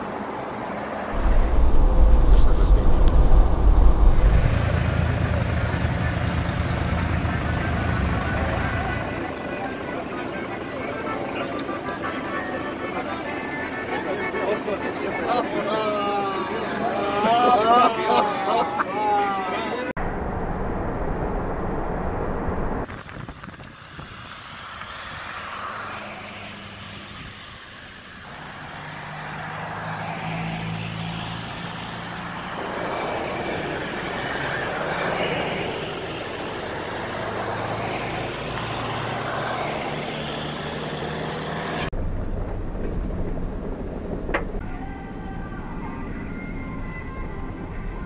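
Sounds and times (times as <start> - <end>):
road and tyre noise: 0.0 - 48.0
vehicle engine running: 1.2 - 9.7.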